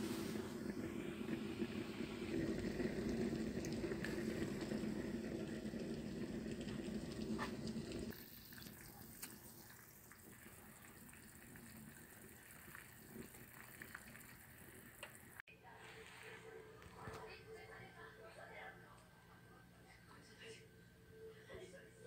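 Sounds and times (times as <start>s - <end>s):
soup boiling under lid: 0.0s - 15.4s
quiet simmer with faint pops: 0.0s - 15.5s.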